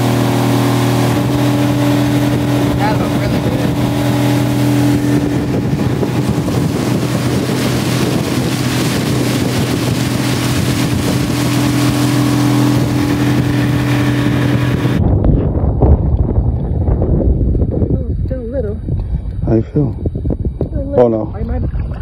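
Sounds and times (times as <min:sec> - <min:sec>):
outboard motor droning: 0:00.0 - 0:22.0
wind and water rushing: 0:00.0 - 0:22.0.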